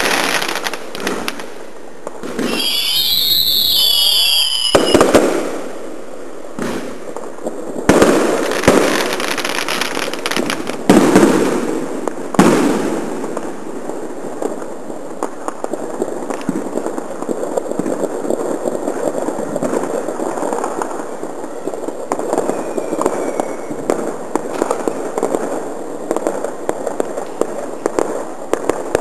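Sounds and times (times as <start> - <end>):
firework bangs: 0.0 - 29.0
firework crackling: 0.0 - 29.0
firework whistles: 2.2 - 5.8, 20.0 - 25.3.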